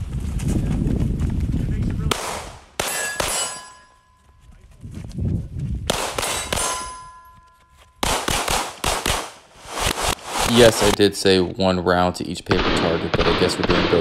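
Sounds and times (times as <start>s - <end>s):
pistol shots: 2.1s - 3.8s, 5.9s - 7.1s, 8.0s - 11.0s, 12.5s - 14.0s
lingering metallic ring: 2.8s - 4.4s, 6.3s - 8.0s.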